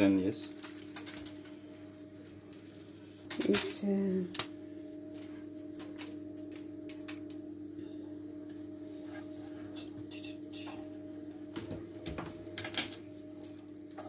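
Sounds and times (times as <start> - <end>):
aluminium foil rustling: 0.0 - 4.4, 12.4 - 14.0
low electrical hum: 0.0 - 14.0.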